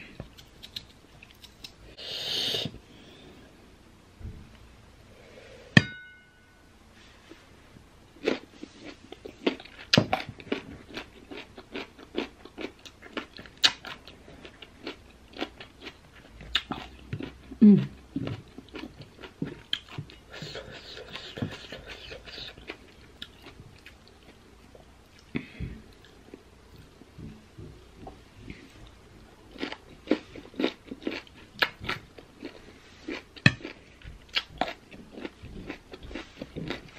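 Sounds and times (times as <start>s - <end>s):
crunching and chewing mango: 8.2s - 24.4s, 29.5s - 36.9s.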